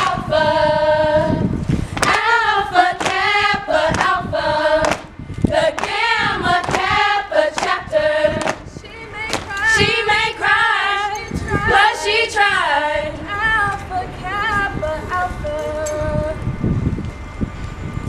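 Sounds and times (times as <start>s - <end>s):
women chanting in unison: 2.0s - 13.3s.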